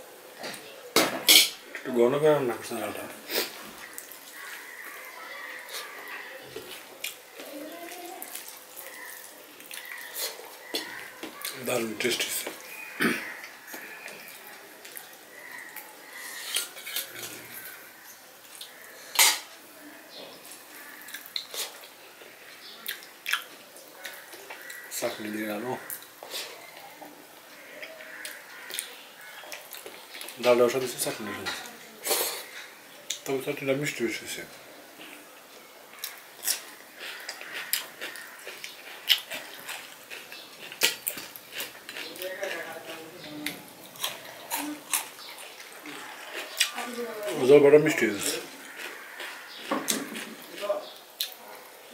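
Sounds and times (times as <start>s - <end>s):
crunching and chewing cucumber: 36.0s - 47.4s, 48.0s - 51.5s.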